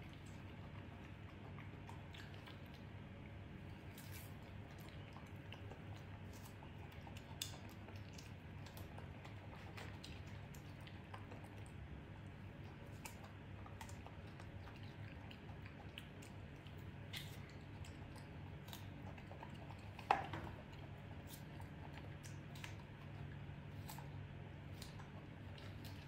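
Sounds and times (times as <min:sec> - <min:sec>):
monkey chewing: 0:00.0 - 0:26.0
steady low hum: 0:00.0 - 0:26.0
wet mouth clicks: 0:04.1 - 0:11.5, 0:12.7 - 0:20.2.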